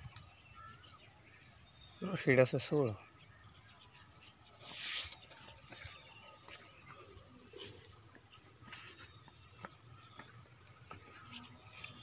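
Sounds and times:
faint ticks and rustles: 3.6 - 12.0.

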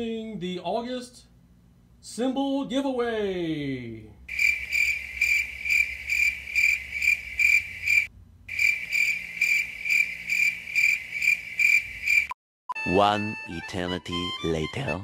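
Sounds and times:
cricket chirping: 4.3 - 12.4.

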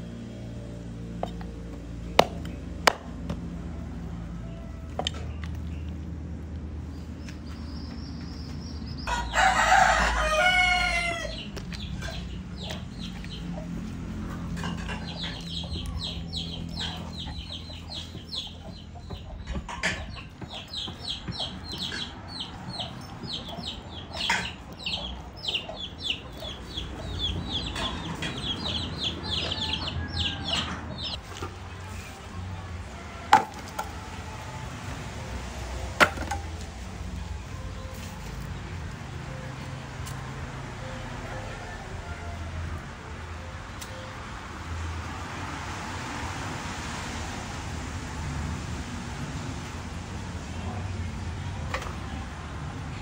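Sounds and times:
rooster crowing: 9.0 - 11.4, 28.7 - 31.1, 41.3 - 42.9.

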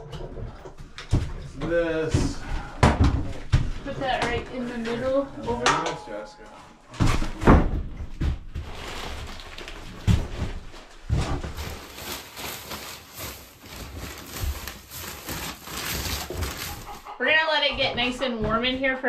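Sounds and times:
wood shavings pouring: 8.6 - 10.2, 11.6 - 16.9
plastic crinkling: 8.6 - 17.1.

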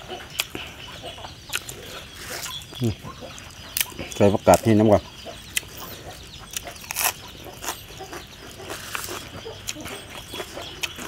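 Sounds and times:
crunching raw vegetables: 1.5 - 4.7, 5.5 - 11.0.

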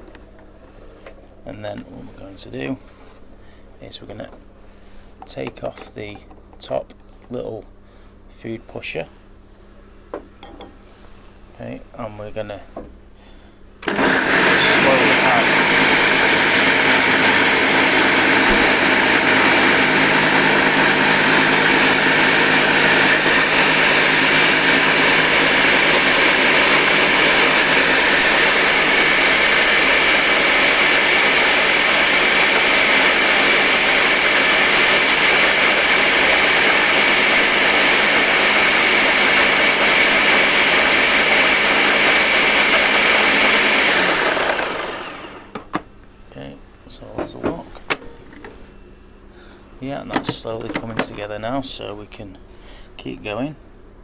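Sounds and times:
food processor whirring: 13.8 - 45.7.

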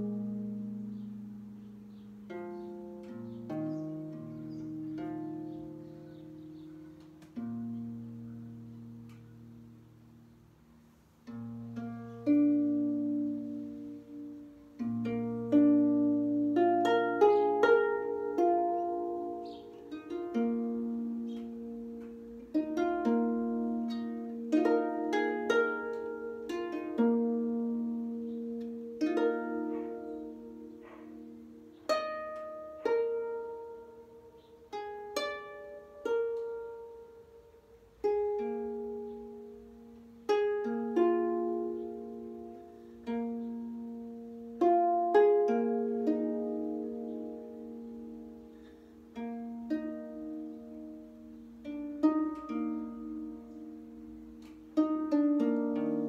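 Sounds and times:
solo harp melody: 0.0 - 56.0.

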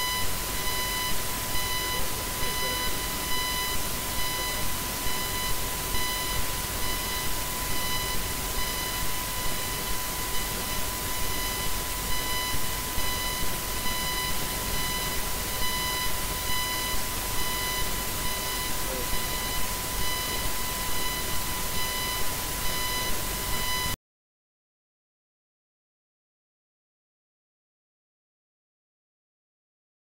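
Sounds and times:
high-pitched microphone feedback: 0.0 - 24.0
constant hiss: 0.2 - 23.5.

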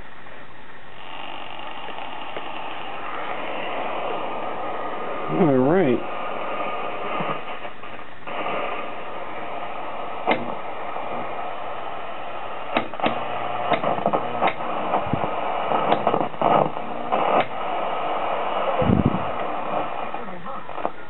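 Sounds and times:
television static hiss: 0.0 - 21.0
sharp clicks: 10.2 - 10.6, 12.7 - 15.0, 15.7 - 17.6.

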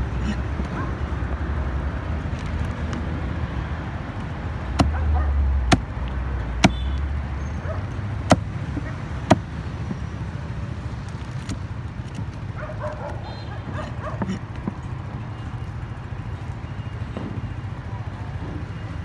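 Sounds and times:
cleaver chopping on wooden block: 4.7 - 7.0, 8.2 - 9.6.

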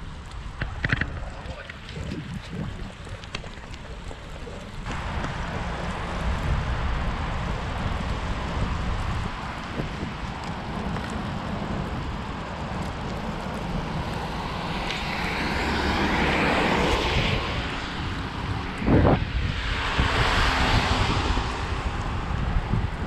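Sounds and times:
wind rumbling on microphone: 0.0 - 23.0
rushing noise: 4.9 - 23.0.

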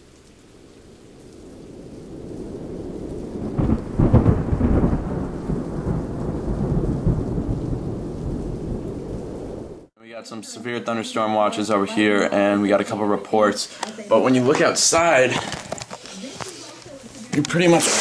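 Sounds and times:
steady rain: 0.0 - 10.0, 11.3 - 18.0
thunder crack and rumble: 0.5 - 9.9.

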